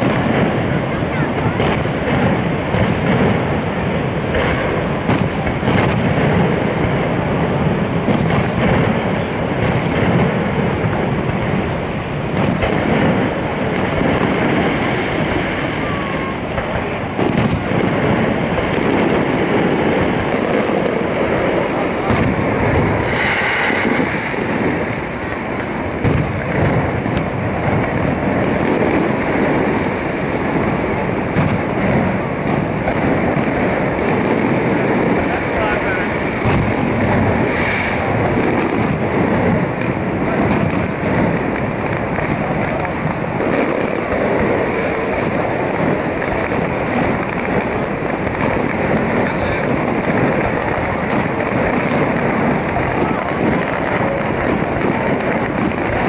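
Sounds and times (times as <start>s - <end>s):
fireworks bangs: 0.0s - 56.0s
loud wash of noise: 0.0s - 56.0s.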